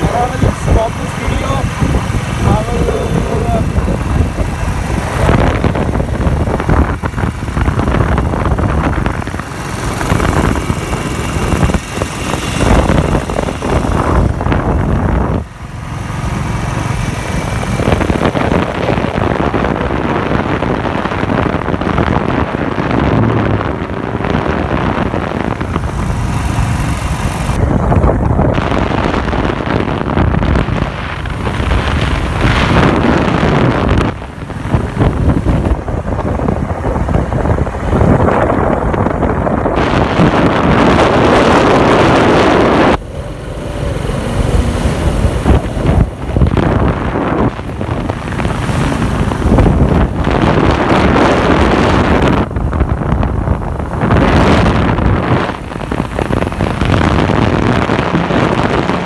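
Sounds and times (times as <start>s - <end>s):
motorcycle engine cruising: 0.0s - 59.0s
wind buffeting microphone: 0.0s - 59.0s.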